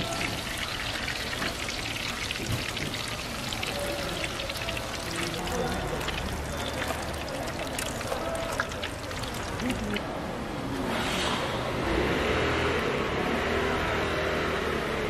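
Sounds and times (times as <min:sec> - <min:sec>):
fritters sizzling in hot oil: 0:00.0 - 0:10.0.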